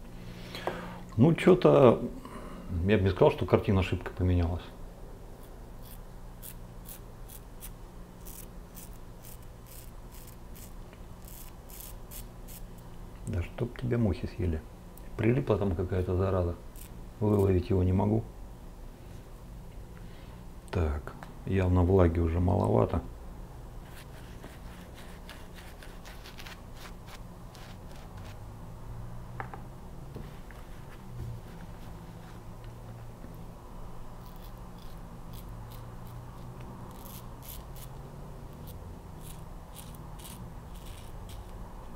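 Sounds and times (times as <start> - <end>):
razor scraping stubble: 5.4 - 12.8, 16.7 - 17.6, 23.8 - 28.4, 34.2 - 41.6.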